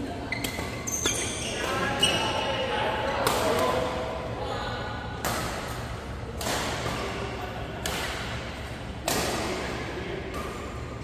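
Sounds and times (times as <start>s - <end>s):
steady low hum: 0.0s - 11.0s
rackets hitting shuttlecock: 0.4s - 2.2s, 5.2s - 10.9s.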